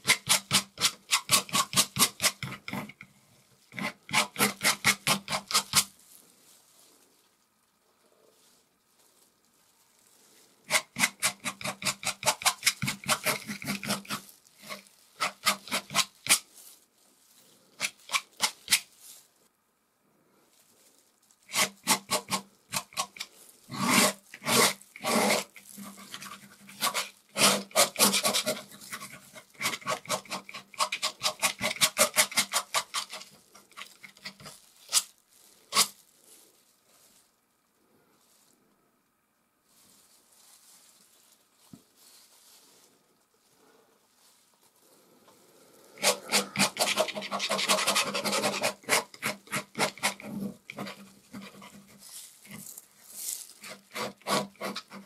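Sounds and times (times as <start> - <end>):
palette knife scraping paint: 0.0 - 3.1, 3.7 - 5.9, 10.7 - 16.5, 17.8 - 18.9, 21.5 - 35.1, 35.7 - 36.0, 46.0 - 52.8, 53.6 - 55.0.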